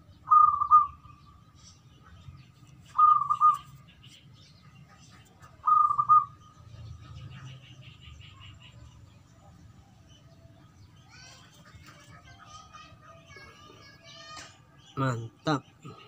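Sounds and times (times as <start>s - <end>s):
dove cooing: 0.3s - 1.0s, 3.0s - 3.7s, 5.5s - 6.4s.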